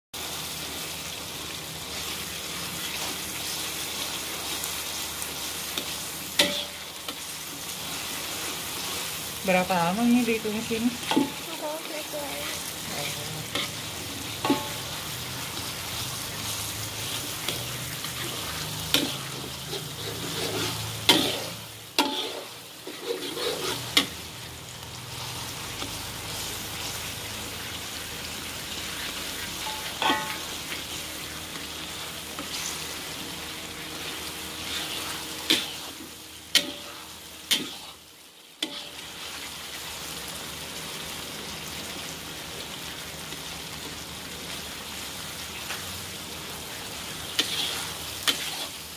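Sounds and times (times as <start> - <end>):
aromatics sizzling in hot oil: 0.1 - 48.9
metal spatula scraping wok: 5.7 - 24.4, 29.4 - 33.0, 34.0 - 38.0, 38.6 - 39.3, 47.1 - 48.9.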